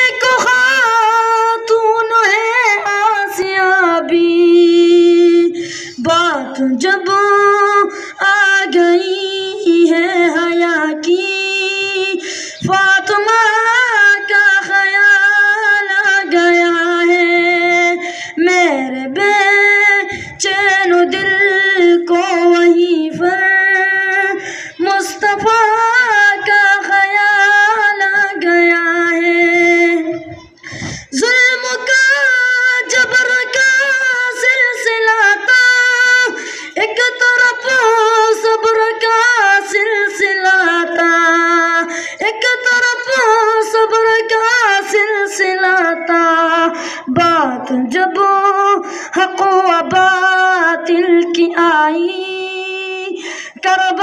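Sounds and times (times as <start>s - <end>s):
person singing unaccompanied: 0.0s - 54.0s
singer breathing: 5.5s - 6.1s, 7.9s - 8.2s, 12.1s - 12.7s, 18.0s - 18.5s, 20.1s - 20.4s, 24.3s - 24.9s, 30.4s - 31.2s, 36.3s - 36.8s, 41.8s - 42.2s, 46.7s - 47.2s, 48.8s - 49.2s, 53.1s - 53.6s.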